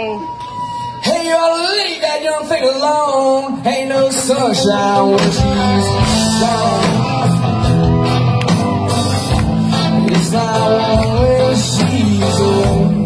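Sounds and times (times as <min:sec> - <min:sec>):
man singing: 0:01.0 - 0:07.5, 0:09.7 - 0:13.0
rock band playing: 0:03.6 - 0:13.0.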